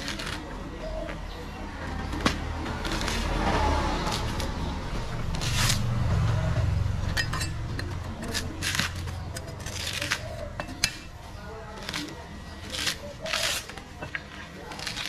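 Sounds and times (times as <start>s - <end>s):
hand tool scraping coconut: 0.0s - 0.6s, 2.2s - 6.1s, 7.0s - 15.0s.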